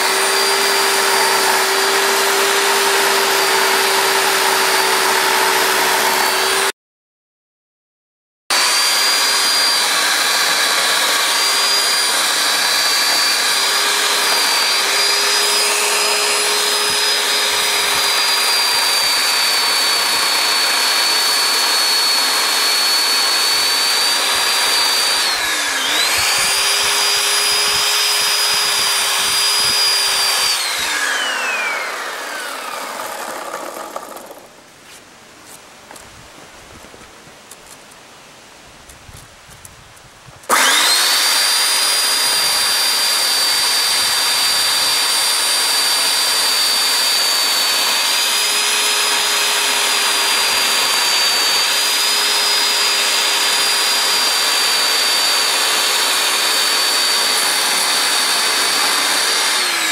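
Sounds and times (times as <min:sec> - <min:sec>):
electric chainsaw whining: 0:00.0 - 0:06.8, 0:08.5 - 0:34.7, 0:40.4 - 0:59.9.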